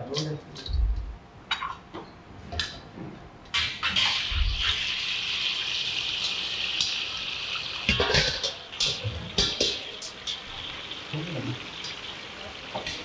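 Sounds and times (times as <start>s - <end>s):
water running from tap: 4.0s - 13.0s.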